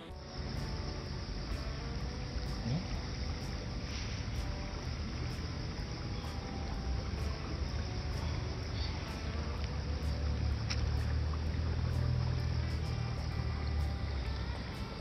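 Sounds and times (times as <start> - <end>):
river running over stones: 0.0 - 15.0.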